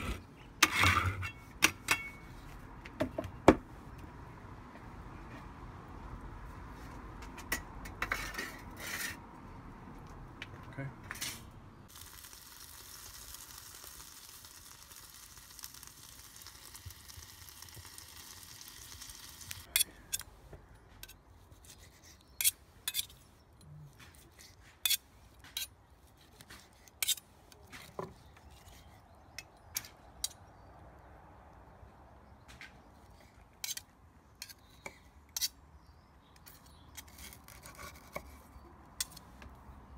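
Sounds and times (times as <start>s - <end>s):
wood fire hissing and crackling: 11.8s - 20.2s.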